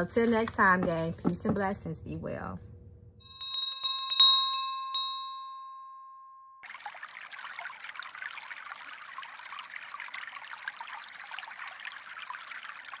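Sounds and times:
stream trickling and babbling: 0:06.6 - 0:13.0.

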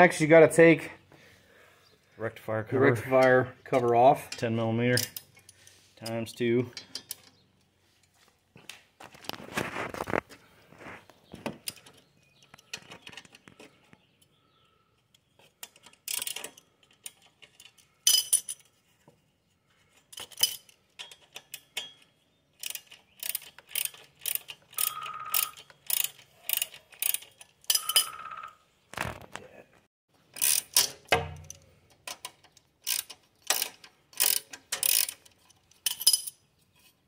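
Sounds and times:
socket wrench ratchet clicking: 0:22.6 - 0:28.2, 0:30.4 - 0:32.2, 0:32.8 - 0:36.1.

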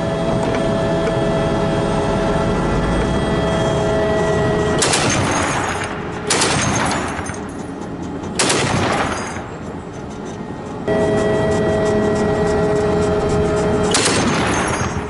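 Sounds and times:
armoured vehicle whine: 0:00.0 - 0:15.0
bursts of gunfire: 0:04.6 - 0:07.5, 0:08.4 - 0:09.6, 0:13.8 - 0:15.0.

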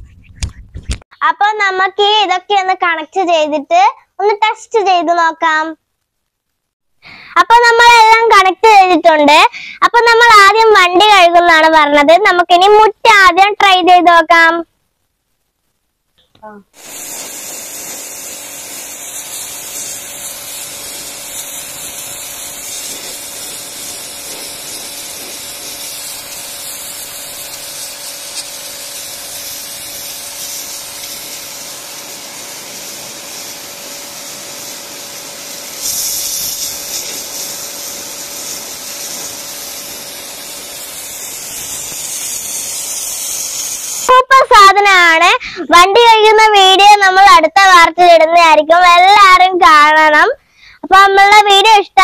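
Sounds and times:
pressure washer jet hissing on stone: 0:16.7 - 0:44.3
motor and pump humming: 0:16.8 - 0:43.9.

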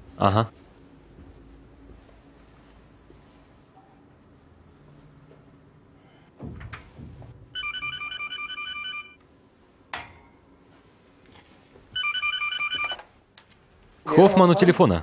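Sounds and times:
telephone ringing with warbling trill: 0:07.6 - 0:09.2, 0:12.0 - 0:13.0.

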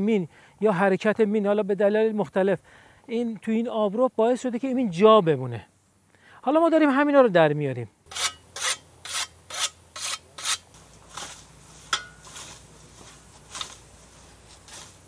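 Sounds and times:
hand tool scraping soil: 0:08.1 - 0:15.0.

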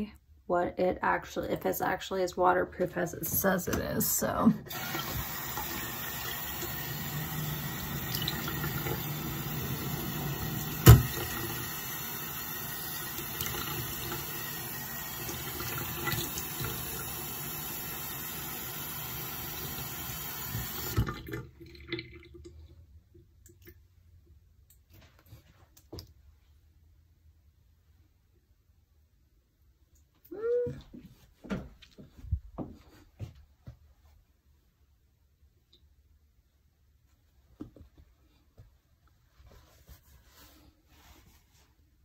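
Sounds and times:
sink tap running: 0:04.7 - 0:22.3.

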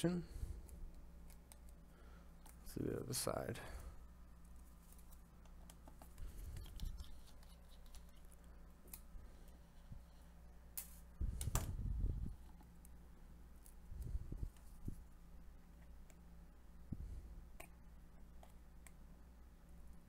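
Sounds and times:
small clicks and scrapes of handling: 0:00.6 - 0:01.8, 0:04.4 - 0:11.7.

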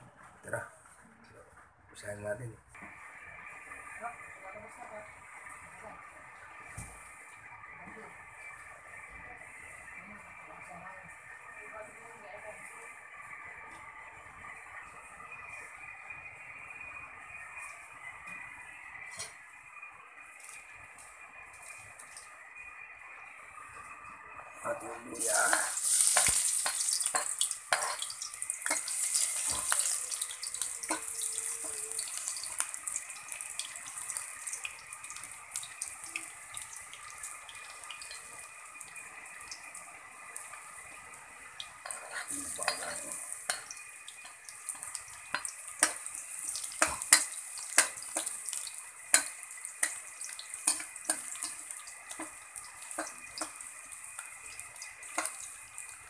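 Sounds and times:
aromatics frying in oil: 0:02.0 - 0:56.0
metal spatula clinking and scraping: 0:25.4 - 0:32.6, 0:41.8 - 0:48.4, 0:49.1 - 0:53.6.

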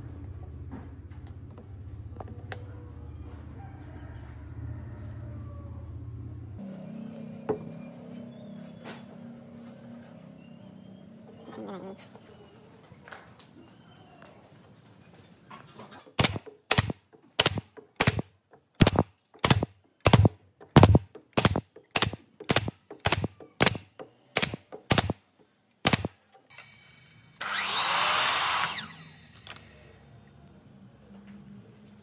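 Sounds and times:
pneumatic nailer firing: 0:16.1 - 0:25.2, 0:25.8 - 0:29.7
miter saw cutting wood: 0:25.9 - 0:29.8.

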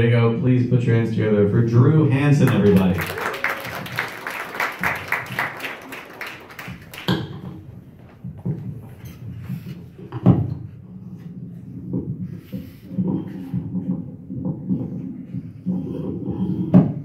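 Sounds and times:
small audience applauding: 0:02.4 - 0:07.8.

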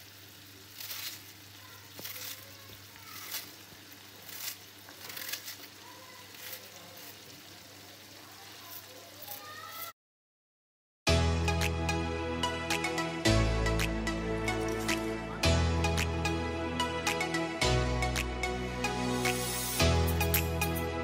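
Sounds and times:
meat sizzling in a frying pan: 0:00.0 - 0:09.9
knife cutting onion: 0:04.2 - 0:05.8.

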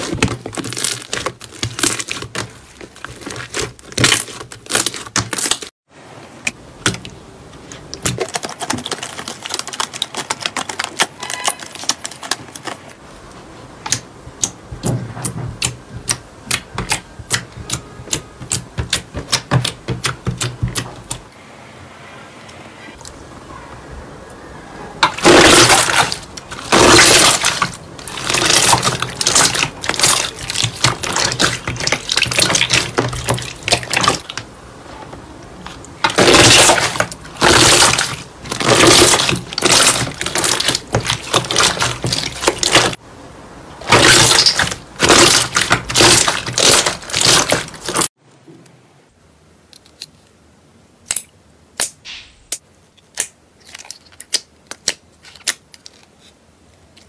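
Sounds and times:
slime squelching and popping: 0:00.0 - 0:05.7, 0:06.8 - 0:12.8, 0:15.6 - 0:21.2, 0:25.0 - 0:34.4, 0:35.6 - 0:43.0, 0:43.8 - 0:48.1.

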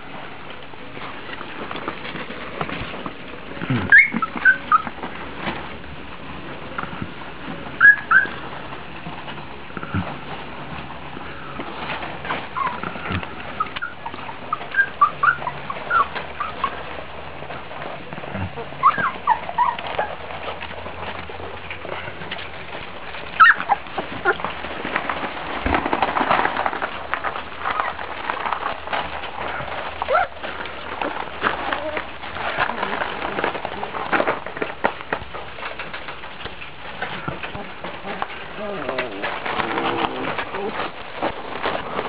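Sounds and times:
puppies squeaking and whimpering: 0:03.6 - 0:05.5, 0:07.7 - 0:08.6, 0:11.8 - 0:21.8, 0:23.1 - 0:24.6, 0:27.6 - 0:34.2.

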